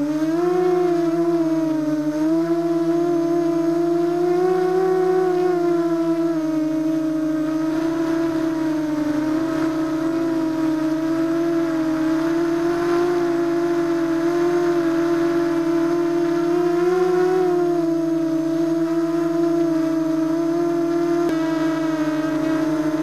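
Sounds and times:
drone motors and propellers whining: 0:00.0 - 0:23.0.

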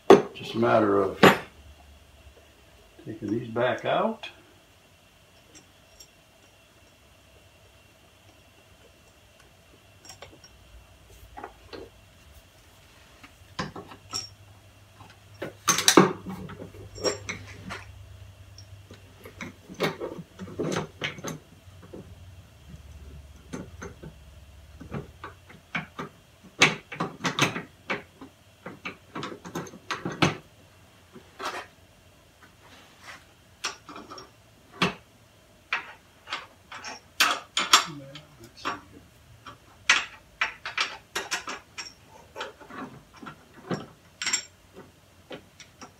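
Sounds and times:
tools clinking against metal: 0:05.4 - 0:07.0, 0:10.0 - 0:10.6, 0:13.6 - 0:14.4, 0:15.1 - 0:17.9, 0:35.8 - 0:38.9, 0:39.5 - 0:44.6.

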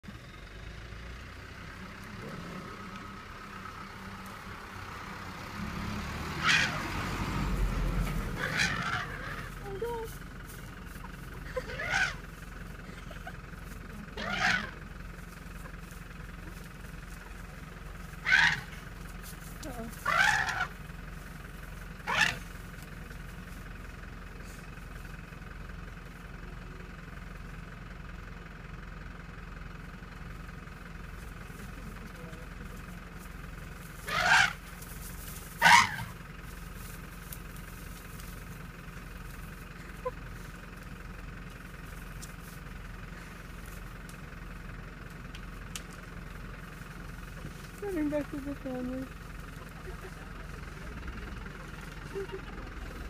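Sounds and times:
vehicle engine idling: 0:00.0 - 0:53.0
elephant calf trumpeting squeal: 0:06.3 - 0:06.9, 0:08.3 - 0:09.6, 0:11.6 - 0:12.3, 0:14.1 - 0:14.8, 0:18.2 - 0:18.8, 0:20.0 - 0:20.8, 0:22.0 - 0:22.5, 0:34.0 - 0:34.7, 0:35.5 - 0:36.2.

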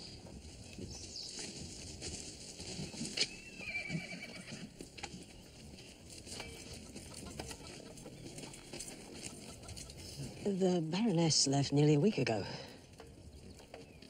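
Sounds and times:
hoof knocks: 0:00.1 - 0:10.4
horse whinnying: 0:03.2 - 0:04.8.

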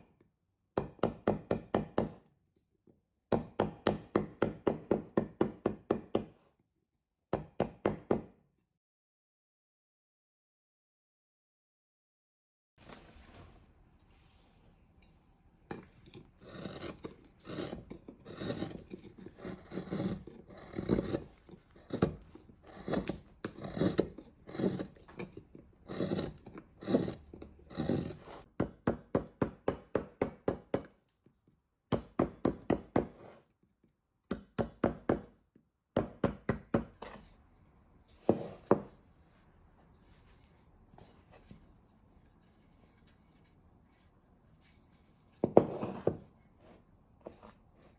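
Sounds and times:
carving gouge scraping wood: 0:15.8 - 0:28.5.

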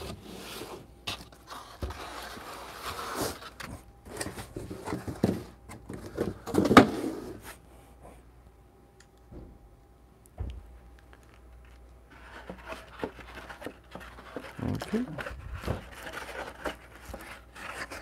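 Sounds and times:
plastic wrap rustling: 0:11.2 - 0:18.0.

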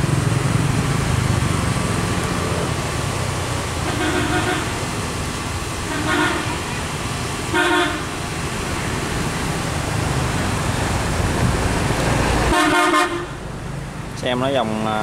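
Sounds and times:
boat engine rumble: 0:00.0 - 0:15.0
horn toots: 0:03.8 - 0:04.8, 0:05.9 - 0:06.8, 0:07.5 - 0:08.1, 0:12.5 - 0:13.3.

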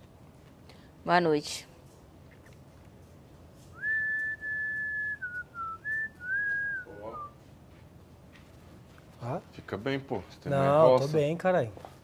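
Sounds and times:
person whistling a tune: 0:03.8 - 0:07.4.

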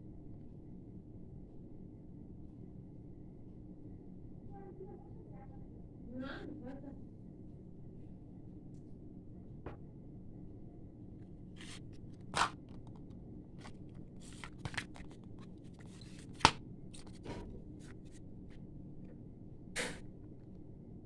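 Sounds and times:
foil blister strip crinkling: 0:11.6 - 0:17.3.

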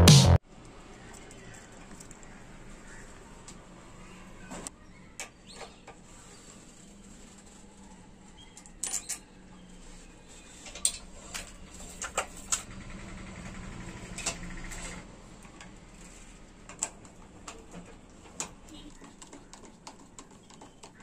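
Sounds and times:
small metal clicks and taps: 0:16.6 - 0:21.0.

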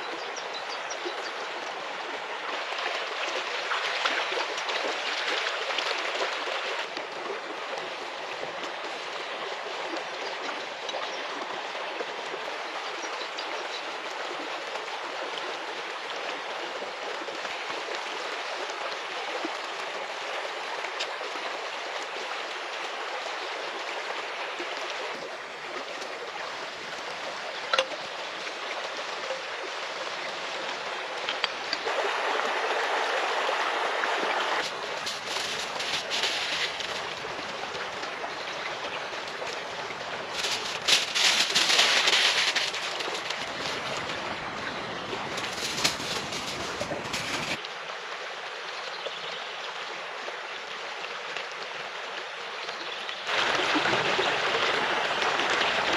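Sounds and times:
river rushing: 0:01.4 - 0:48.4, 0:53.2 - 0:55.9
aluminium foil crinkling: 0:34.6 - 0:37.1, 0:40.3 - 0:43.8, 0:45.4 - 0:47.6.

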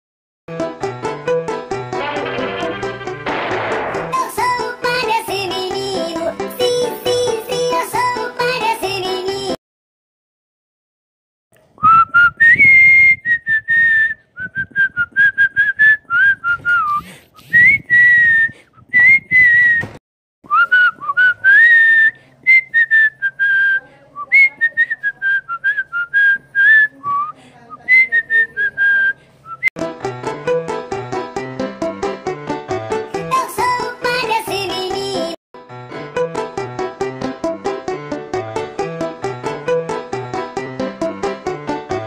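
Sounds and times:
clarinet wobbly cartoon tune: 0:01.9 - 0:03.2.

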